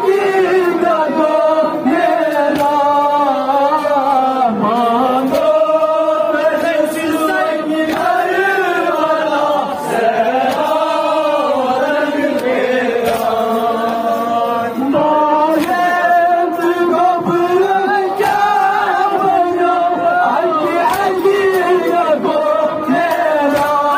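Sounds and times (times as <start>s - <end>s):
men chanting a lament over loudspeaker: 0.0s - 23.9s
chest-beating slaps: 2.0s - 3.9s, 5.2s - 9.1s, 9.9s - 14.2s, 15.5s - 16.7s, 20.8s - 21.9s, 23.0s - 23.9s.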